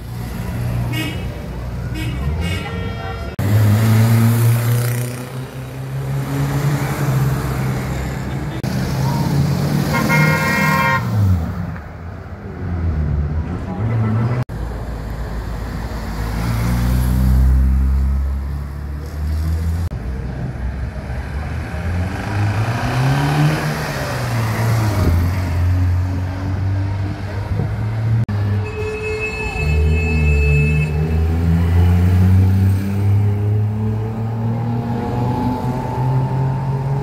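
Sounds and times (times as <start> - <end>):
vintage cars passing and revving: 0.0 - 37.0
car horn toot: 9.9 - 11.1, 28.5 - 31.2.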